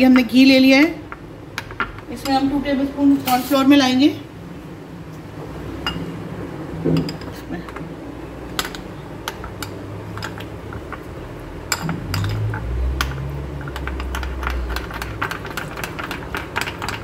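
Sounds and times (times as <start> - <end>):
metal spoon stirring in glass bowl: 11.7 - 17.0.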